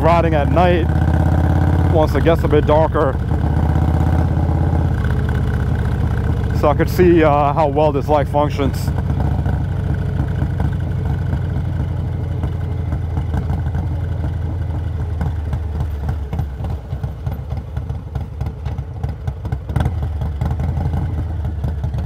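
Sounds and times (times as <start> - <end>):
motorcycle engine running: 0.0 - 22.0.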